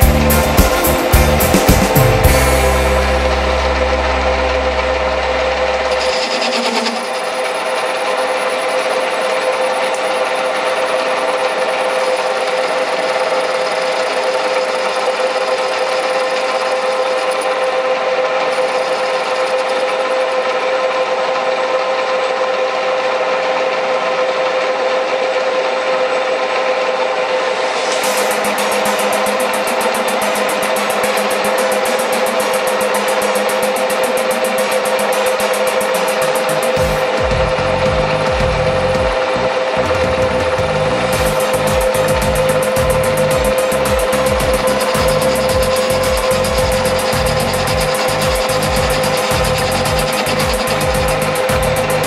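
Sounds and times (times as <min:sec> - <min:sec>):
low hum: 0:00.0 - 0:08.0, 0:25.6 - 0:52.0
metal lathe whining: 0:00.0 - 0:52.0
cutting tool scraping metal: 0:05.6 - 0:21.5, 0:27.0 - 0:52.0.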